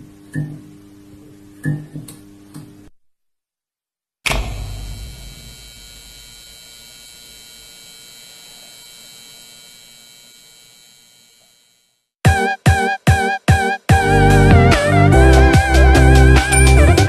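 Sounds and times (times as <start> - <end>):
electric hum with held tones: 0.0 - 2.9, 4.3 - 12.0
loud musical chords: 13.9 - 17.0.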